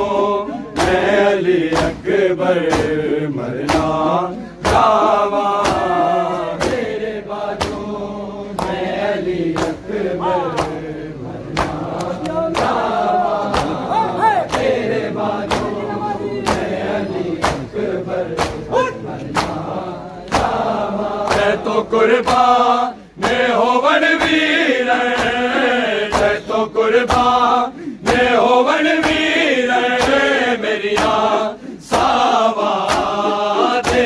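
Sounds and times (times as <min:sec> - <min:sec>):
men chanting a lament: 0:00.0 - 0:34.0
chest-beating slaps: 0:00.8 - 0:07.9, 0:08.6 - 0:08.9, 0:09.5 - 0:22.6, 0:23.2 - 0:34.0.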